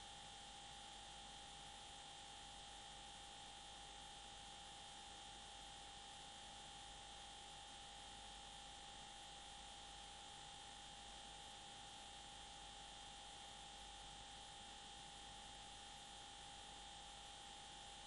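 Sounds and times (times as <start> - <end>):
faint steady hum and hiss: 0.0 - 18.0.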